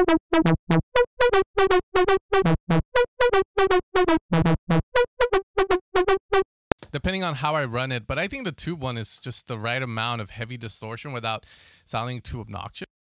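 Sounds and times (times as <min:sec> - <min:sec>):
distorted synth lead staccato melody: 0:00.0 - 0:06.4.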